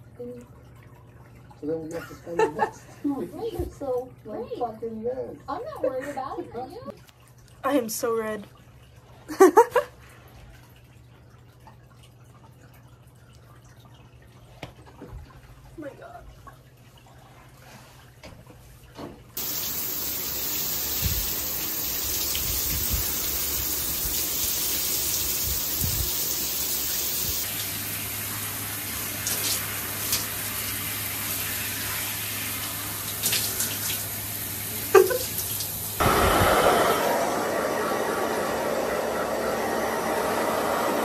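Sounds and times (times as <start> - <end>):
hair dryer running: 19.4 - 27.5, 36.0 - 41.0
shower spray running over hair: 19.4 - 27.8.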